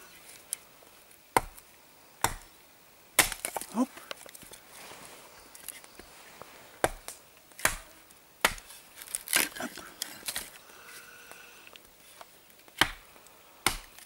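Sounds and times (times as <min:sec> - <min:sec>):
axe chopping wood: 0:01.3 - 0:01.6, 0:02.2 - 0:02.5, 0:03.2 - 0:03.8, 0:06.8 - 0:09.4, 0:12.8 - 0:13.0, 0:13.6 - 0:14.0
wood splintering crackle: 0:08.4 - 0:10.6.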